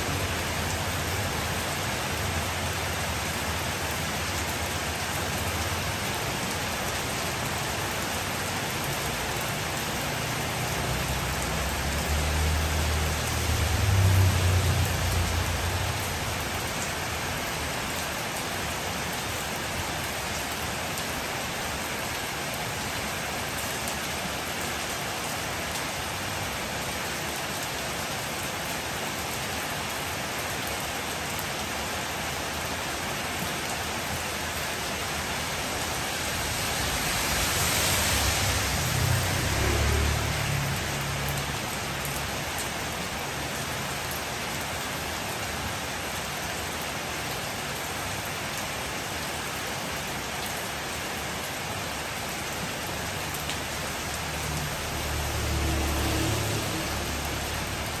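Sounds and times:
car tyres hissing on wet road: 0.0s - 58.0s
heavy rain on street: 0.0s - 58.0s
motorbike engine passing: 54.7s - 58.0s.

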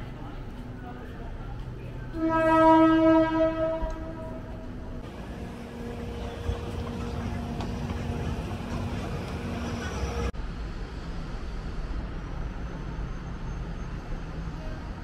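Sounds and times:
train horn: 2.1s - 4.7s.

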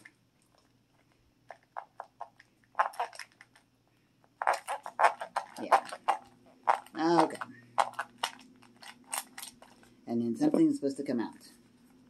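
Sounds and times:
plastic knife scraping toy: 4.4s - 9.8s.

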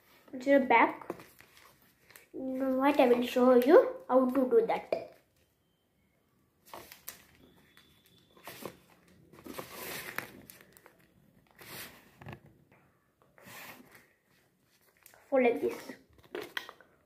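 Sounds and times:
paper rustling and crinkling: 1.1s - 3.3s, 6.6s - 12.4s.

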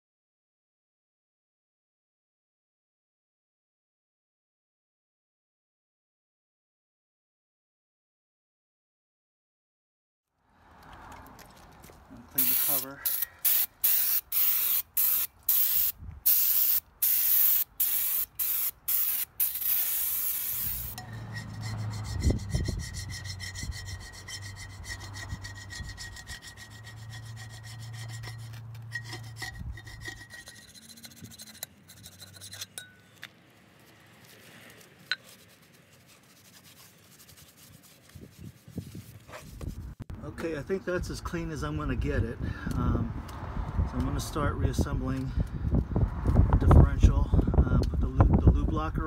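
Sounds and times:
scraper rasping on steel: 17.5s - 32.8s, 35.1s - 39.8s
rubbing and wiping: 35.1s - 40.0s.

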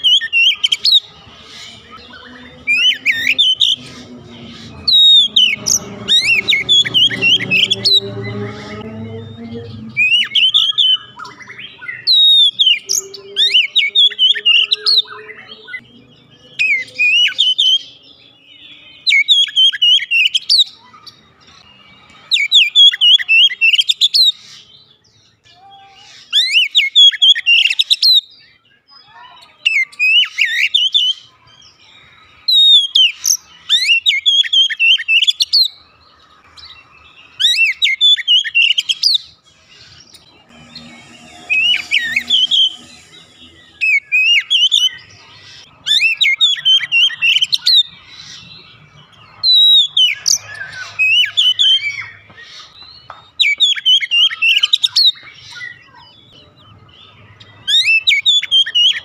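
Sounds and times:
magpie-robin singing: 0.0s - 59.0s.

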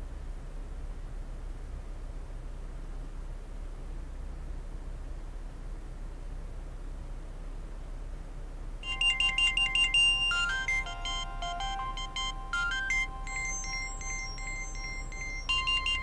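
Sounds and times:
phone ringtone melody: 8.8s - 16.0s.

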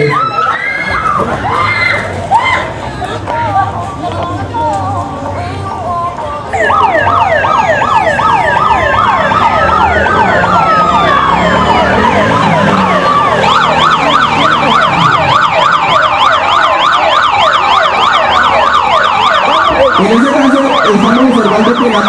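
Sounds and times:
electronic sirens yelping: 0.0s - 2.6s, 6.5s - 22.0s
siren wail: 0.0s - 2.7s, 6.5s - 22.0s
rapid siren warble: 6.5s - 22.0s.

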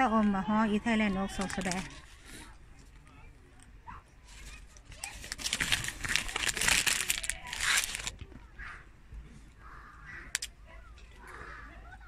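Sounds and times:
plastic wrapper crinkling: 1.2s - 2.2s, 4.3s - 8.4s.

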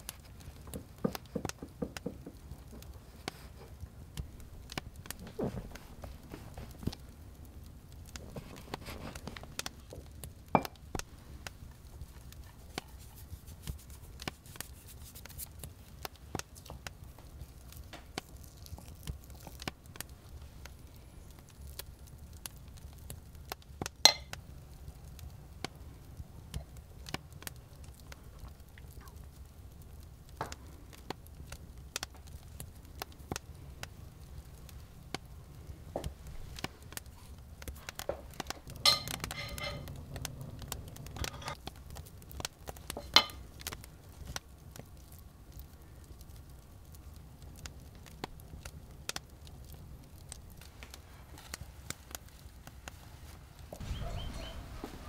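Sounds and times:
objects knocking and clinking: 24.1s - 24.3s, 38.8s - 39.9s.

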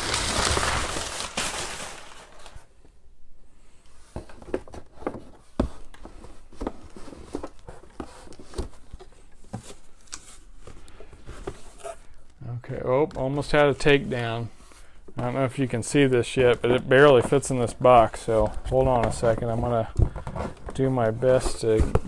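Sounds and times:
packing paper crinkling: 0.0s - 2.7s.

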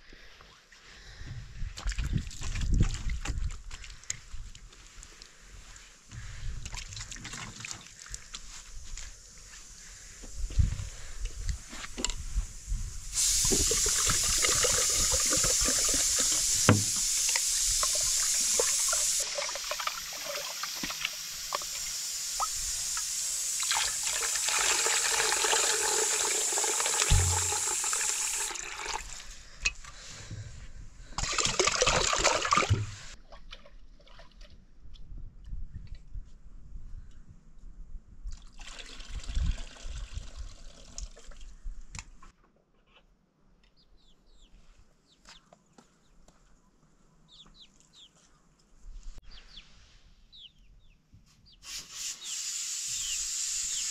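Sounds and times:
water pouring into metal pot: 13.2s - 29.2s.

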